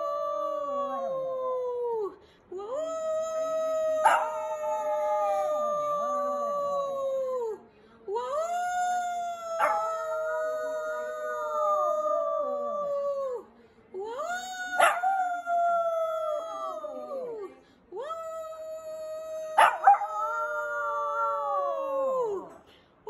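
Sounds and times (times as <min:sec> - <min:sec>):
dog howling: 0:03.6 - 0:07.5, 0:08.4 - 0:13.4, 0:14.4 - 0:17.5, 0:18.2 - 0:22.6.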